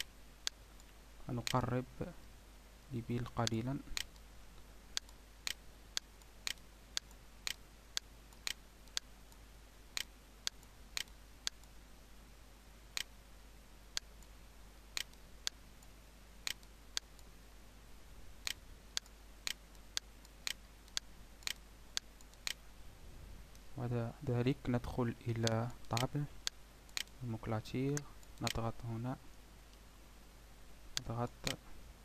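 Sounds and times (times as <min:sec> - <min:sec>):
faint low hum: 0:00.0 - 0:32.0
computer mouse clicking: 0:05.0 - 0:09.4, 0:16.4 - 0:17.3, 0:18.4 - 0:22.6, 0:25.4 - 0:27.2.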